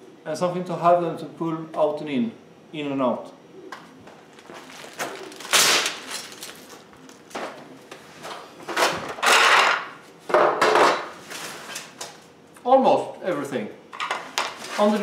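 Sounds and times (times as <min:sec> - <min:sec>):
plastic crinkling: 0:04.1 - 0:07.4.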